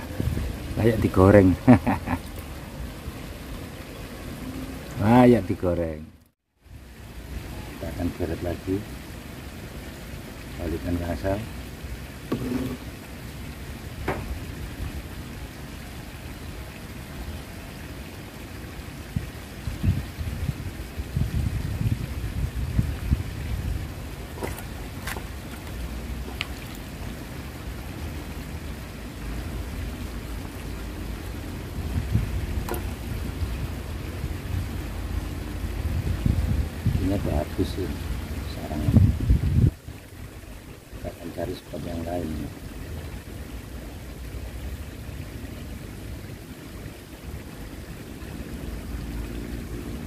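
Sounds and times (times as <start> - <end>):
wind buffeting microphone: 0.0 - 1.6, 19.1 - 25.8, 31.6 - 37.4, 38.4 - 39.9.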